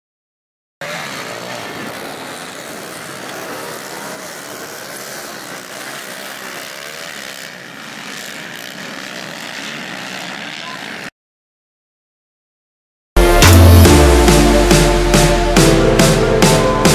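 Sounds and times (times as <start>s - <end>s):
pit bike engines revving: 0.8s - 11.1s.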